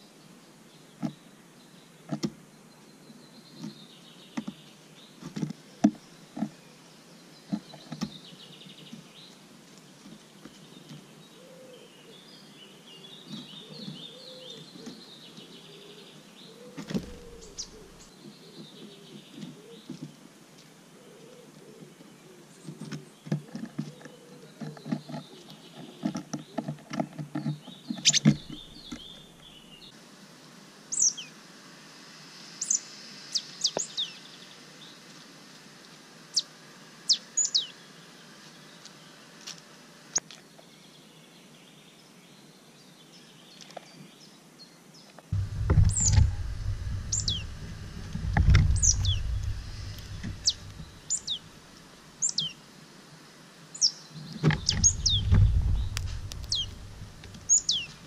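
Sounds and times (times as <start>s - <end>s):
birds chirping: 0.7s - 20.2s, 21.0s - 30.0s, 37.1s - 39.3s, 45.4s - 52.6s, 53.7s - 58.0s
squirrel scrabbling on wood: 45.4s - 51.5s, 54.4s - 58.0s.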